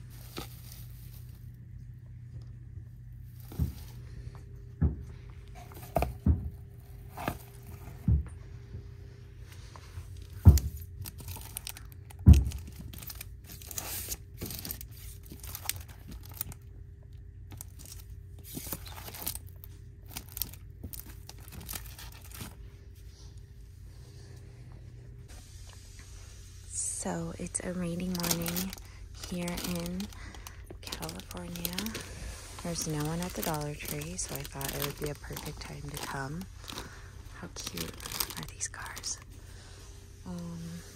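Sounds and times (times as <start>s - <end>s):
faint steady hum: 0.0s - 40.9s
plastic packaging crinkling: 10.1s - 16.7s, 17.4s - 22.6s, 27.4s - 39.3s.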